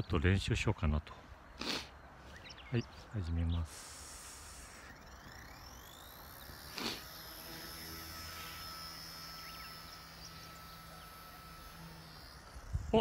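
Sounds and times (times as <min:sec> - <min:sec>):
toy helicopter motor whining: 0:03.4 - 0:13.0.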